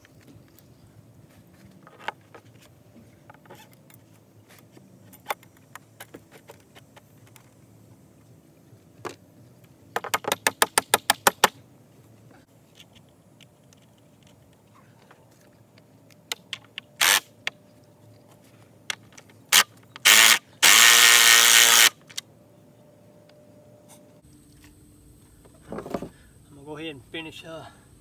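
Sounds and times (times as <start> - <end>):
cordless drill running: 17.0 - 17.2, 20.0 - 22.0.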